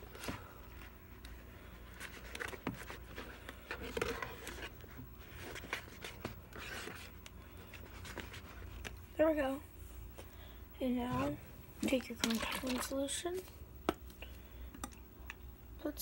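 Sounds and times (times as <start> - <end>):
spoon stirring thick slime: 11.1 - 15.4.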